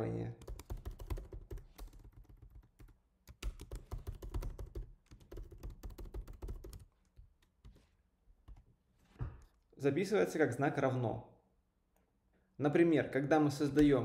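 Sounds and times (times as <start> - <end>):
typing on computer keyboard: 0.4 - 6.9.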